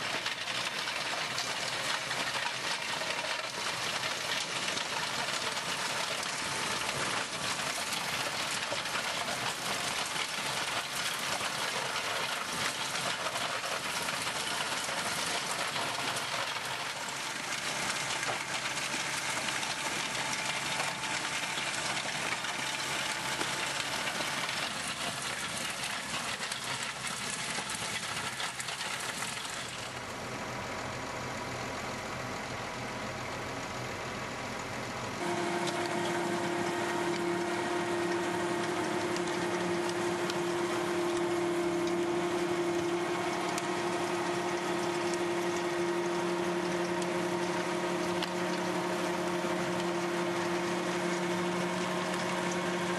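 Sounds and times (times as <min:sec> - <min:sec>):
tractor engine and rotor din: 0:00.0 - 0:52.9
steady whine of held tones: 0:35.2 - 0:52.9.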